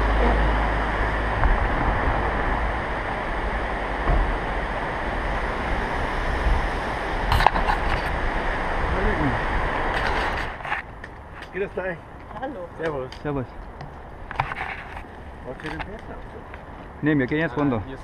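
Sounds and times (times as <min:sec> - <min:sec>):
steady rushing noise: 0:00.0 - 0:17.1.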